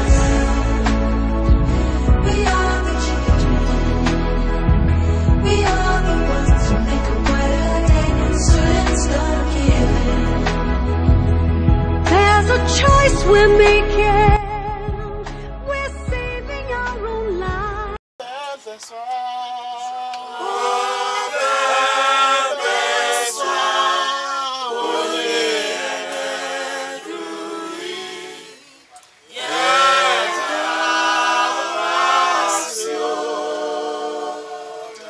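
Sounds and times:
choir singing a cappella: 0.0 - 11.0, 20.2 - 35.0.

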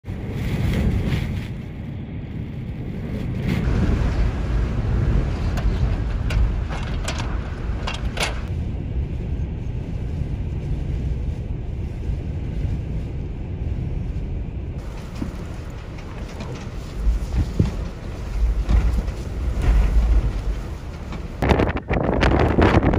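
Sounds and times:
wind buffeting microphone: 0.0 - 22.9
short crackles: 14.8 - 22.9.

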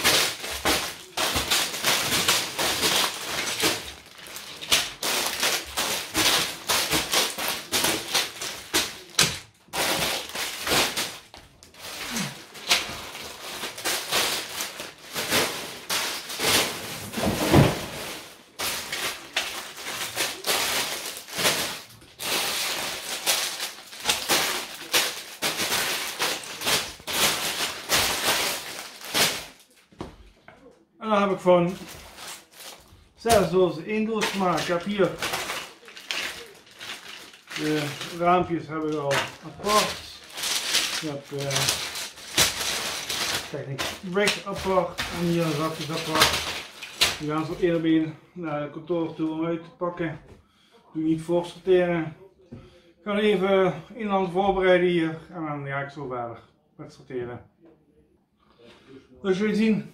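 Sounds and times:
plastic bags crinkling: 0.0 - 30.3, 31.1 - 48.1.

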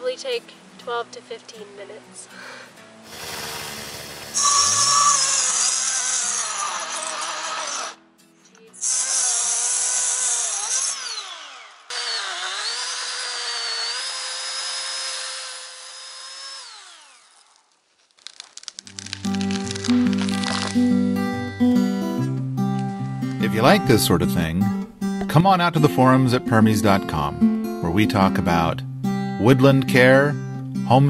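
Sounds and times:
chainsaw cutting tree: 3.0 - 8.0, 8.8 - 21.0.

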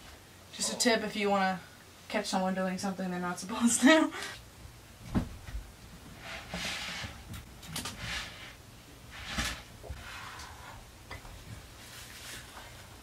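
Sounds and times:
footsteps knocking and rustling: 5.0 - 5.7.

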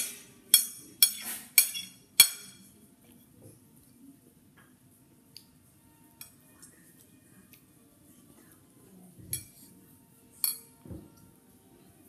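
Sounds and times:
cutlery clinking against dish: 0.0 - 2.7, 9.3 - 9.7, 10.4 - 10.8.

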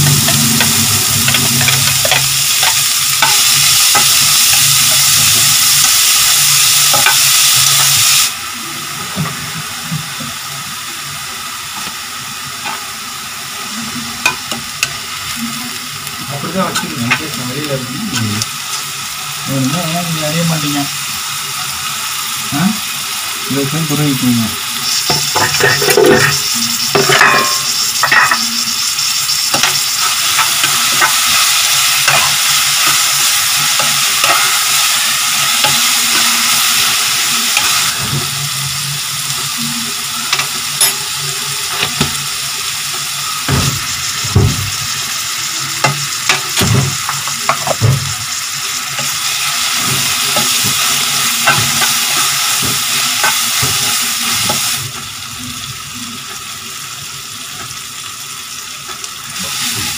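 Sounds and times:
steel spoon scraping pan: 0.0 - 4.7, 24.9 - 36.9
vegetables sizzling in oil: 0.0 - 59.9.

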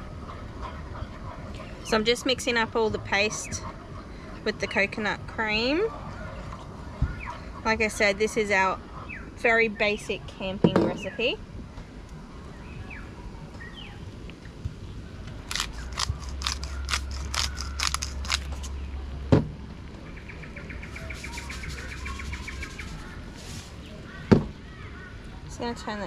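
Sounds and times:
spice shaker rattling: 15.5 - 18.7
bird chirping trill: 20.1 - 23.2.

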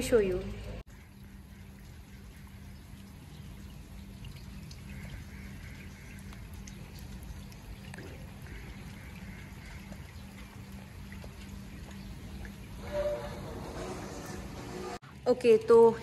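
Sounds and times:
drops ticking: 0.0 - 12.8
rain falling on pool and paving: 0.7 - 16.0.

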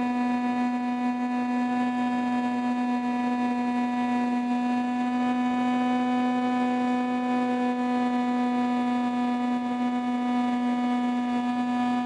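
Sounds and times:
model plane propeller buzzing: 0.0 - 12.0.

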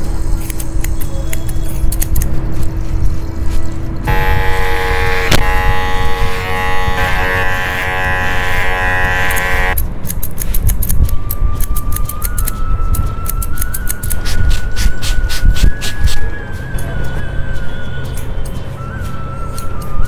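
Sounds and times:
scissors snipping hair: 0.3 - 2.7, 6.8 - 16.1
electric hair clippers buzzing: 4.1 - 9.8.

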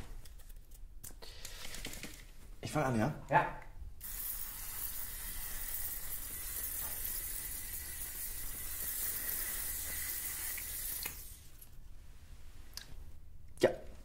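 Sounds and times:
aerosol spray hissing: 4.0 - 11.5.

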